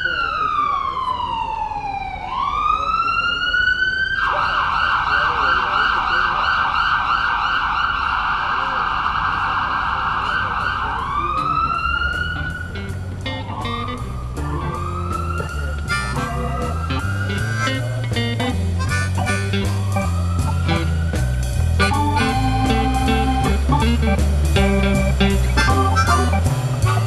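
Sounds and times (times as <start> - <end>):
emergency siren wailing and yelping: 0.0 - 24.0, 24.6 - 27.0
music with clicking percussion: 14.4 - 27.0.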